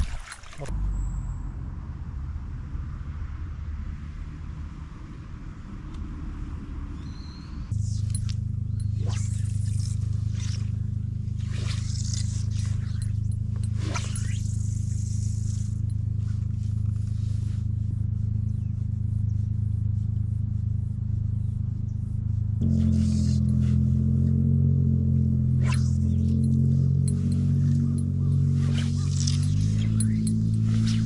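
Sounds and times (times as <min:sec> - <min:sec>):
steady low drone: 0:00.6 - 0:31.0
fly line swishing through air: 0:07.7 - 0:18.0, 0:22.6 - 0:24.2, 0:25.3 - 0:31.0
line hissing through rod guides: 0:11.4 - 0:15.8.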